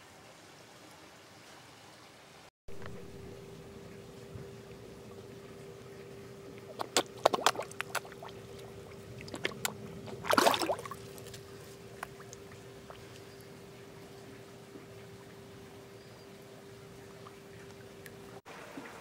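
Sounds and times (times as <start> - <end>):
fish splashing in water: 2.7 - 15.4.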